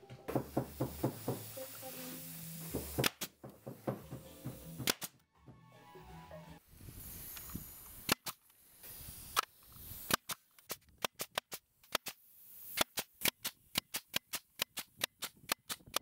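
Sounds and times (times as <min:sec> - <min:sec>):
nail gun firing: 0:02.7 - 0:05.2.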